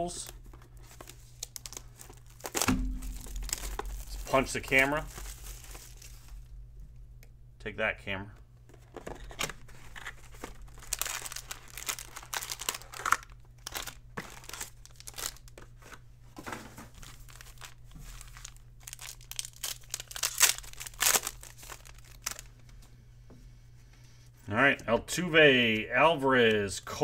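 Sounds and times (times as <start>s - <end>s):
foil wrappers crinkling: 0.0s - 6.5s, 8.8s - 16.0s, 16.8s - 22.7s
foil pack tearing open: 0.2s - 6.4s, 9.2s - 15.6s, 16.9s - 22.5s.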